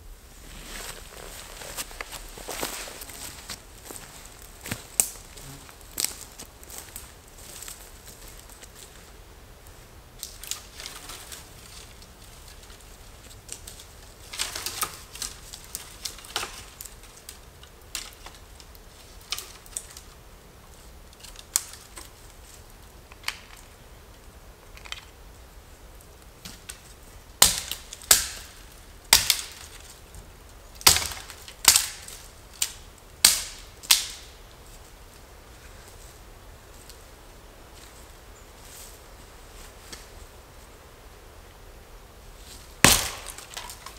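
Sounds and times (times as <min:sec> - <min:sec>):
footsteps on forest floor: 0:00.4 - 0:09.1
twigs snapping: 0:01.2 - 0:08.8, 0:10.2 - 0:12.8, 0:13.4 - 0:20.2, 0:21.1 - 0:22.2, 0:26.4 - 0:30.0, 0:30.8 - 0:34.4, 0:42.8 - 0:43.9
hatchet striking dry wood: 0:29.2 - 0:29.6, 0:42.8 - 0:43.9.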